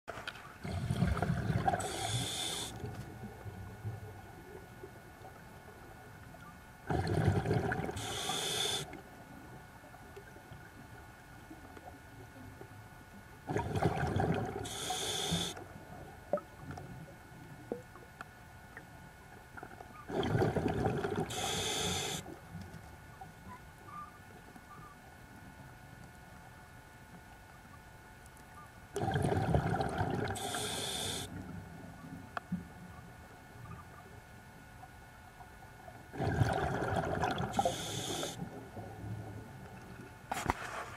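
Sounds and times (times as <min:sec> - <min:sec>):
scuba regulator breathing: 0:01.7 - 0:02.8, 0:08.0 - 0:09.0, 0:14.6 - 0:15.6, 0:21.3 - 0:22.2, 0:30.3 - 0:31.4, 0:37.5 - 0:38.4.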